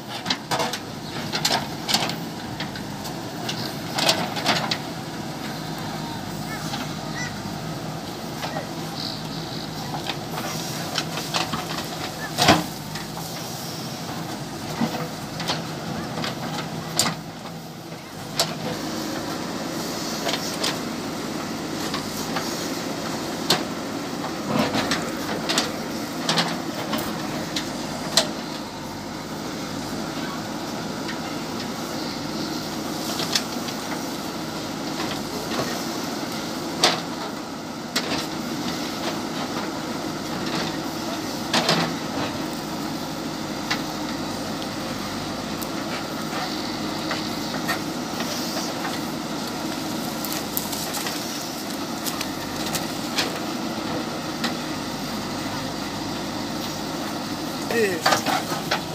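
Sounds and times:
diesel engine running: 0.0 - 58.9
digger bucket knocking and clanking: 33.0 - 58.9.

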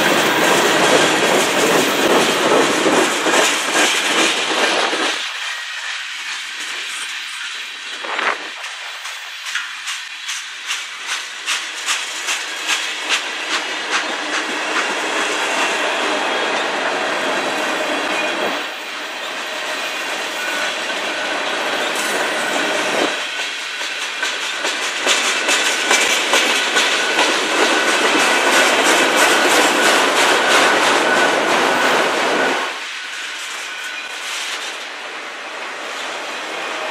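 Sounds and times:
train wheels clicking over rail joints: 0.0 - 35.0
train rumble: 0.0 - 36.9
high wheel squeal: 5.3 - 8.2, 14.8 - 23.4, 29.2 - 34.6.

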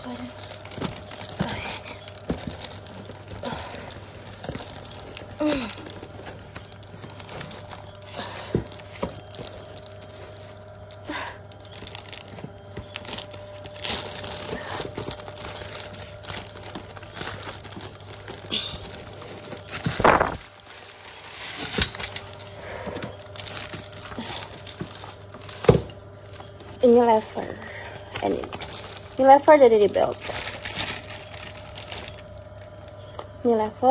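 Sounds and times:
plastic bag crinkling: 0.0 - 33.9
cardboard box rustling: 0.4 - 10.7, 11.6 - 21.8, 22.9 - 27.4.

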